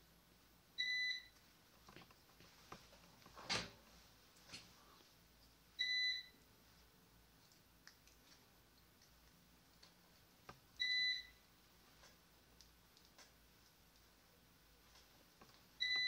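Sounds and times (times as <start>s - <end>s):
multimeter beeps: 0.8s - 1.4s, 5.8s - 6.4s, 10.8s - 11.4s, 15.8s - 16.0s.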